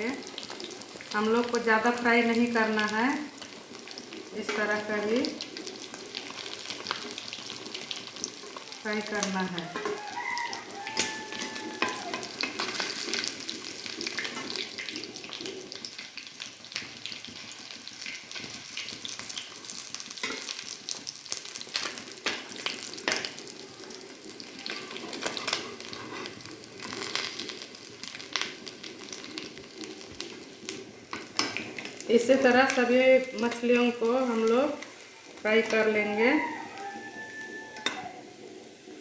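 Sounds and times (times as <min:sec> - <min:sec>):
fish sizzling in hot oil: 0:00.0 - 0:39.0
metal spatula scraping pan: 0:25.0 - 0:27.2.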